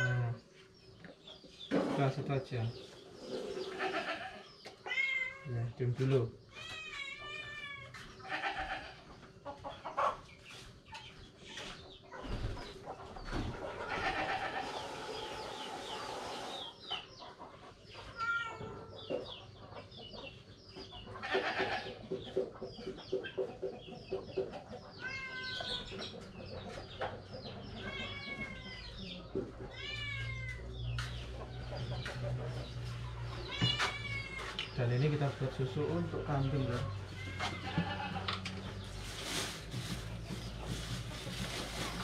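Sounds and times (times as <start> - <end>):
chickens clucking: 0.0 - 42.0
cat meowing: 4.9 - 5.5, 6.6 - 8.7, 18.2 - 19.0, 25.0 - 25.8, 27.8 - 29.0, 29.7 - 30.6, 33.5 - 34.6.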